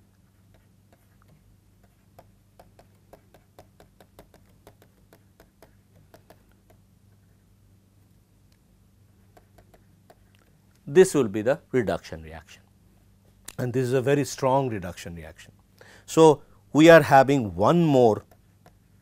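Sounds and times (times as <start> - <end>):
low steady hum: 0.0 - 19.0
stylus tapping on tablet: 0.5 - 6.9, 9.3 - 10.3, 18.2 - 18.9.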